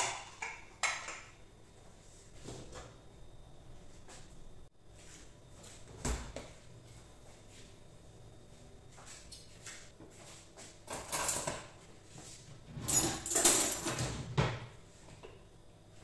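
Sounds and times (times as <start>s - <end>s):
pots and pans clattering: 0.0s - 1.3s, 10.9s - 11.7s, 12.7s - 14.6s.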